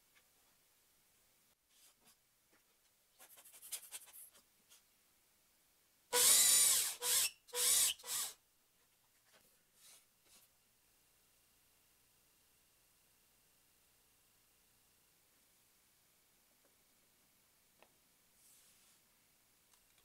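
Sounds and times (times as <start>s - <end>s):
cordless drill boring into wood: 6.1s - 8.4s.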